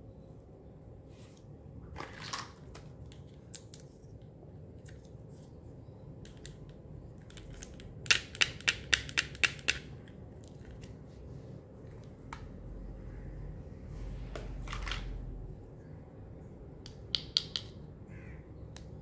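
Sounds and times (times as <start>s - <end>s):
plastic toy clicking and clacking: 7.2s - 10.9s.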